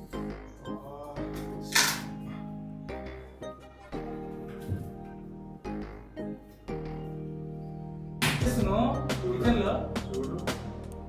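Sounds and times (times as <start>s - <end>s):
instrumental background music: 0.0s - 11.0s.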